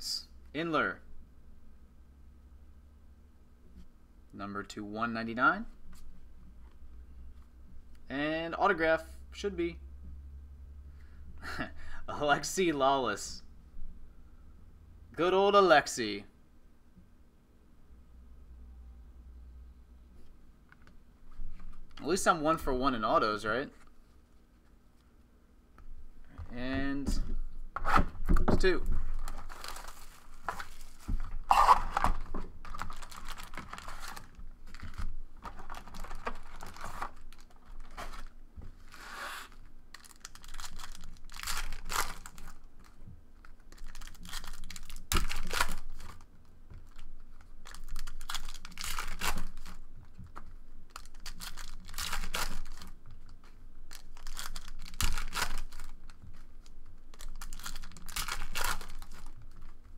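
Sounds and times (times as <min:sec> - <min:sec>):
cards being handled: 0:28.6 - 0:59.9
foil wrappers torn and crinkled: 0:29.1 - 0:38.3, 0:39.5 - 0:59.9.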